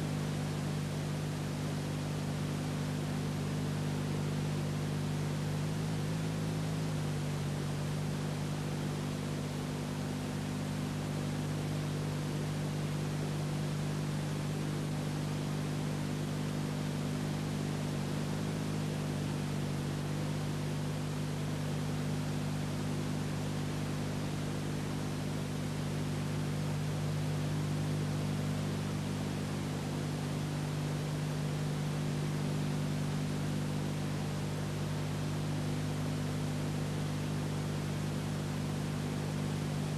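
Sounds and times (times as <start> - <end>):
low electrical hum: 0.0 - 39.9.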